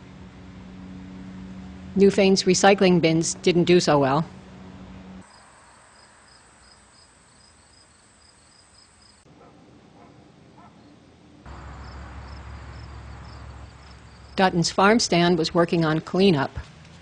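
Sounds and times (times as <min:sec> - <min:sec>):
insects chirping: 0:05.2 - 0:09.3, 0:11.5 - 0:14.6.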